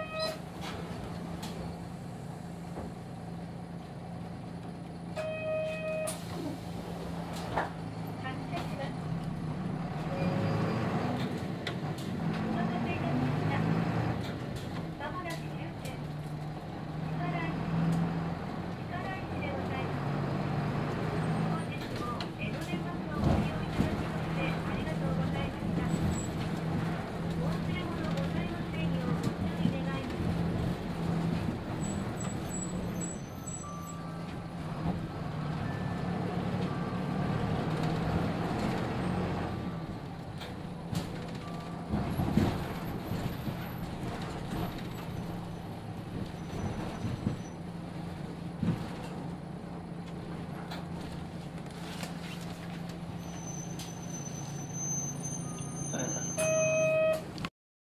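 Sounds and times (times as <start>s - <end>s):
bus diesel engine humming: 0.0s - 57.5s
clunks inside bus: 0.0s - 57.5s
short electronic chime: 55.7s - 57.2s.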